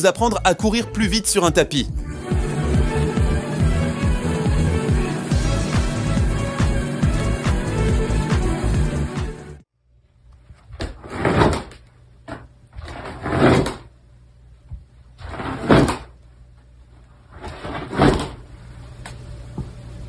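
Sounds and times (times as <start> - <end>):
plastic cone collar scraping wood: 12.8 - 13.8, 15.2 - 16.0.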